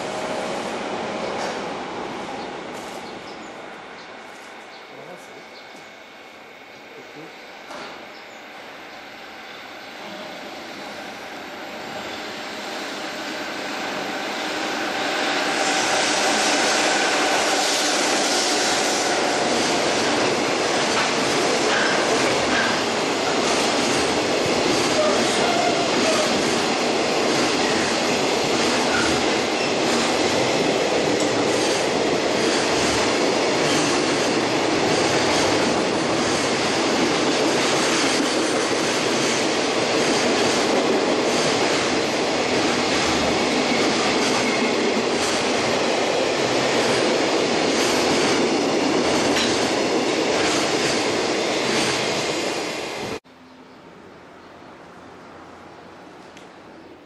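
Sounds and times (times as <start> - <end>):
train wheels rushing on rails: 0.0 - 6.3, 6.9 - 53.2
clacks over rail joints: 49.3 - 49.7.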